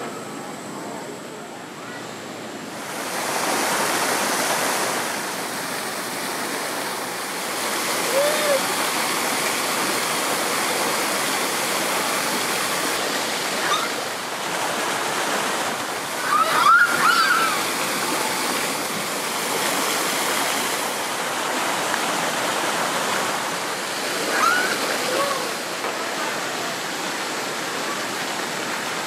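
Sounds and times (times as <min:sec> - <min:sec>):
waterfall splashing over rocks: 0:02.8 - 0:29.0
short high calls: 0:16.2 - 0:17.6, 0:24.3 - 0:25.6.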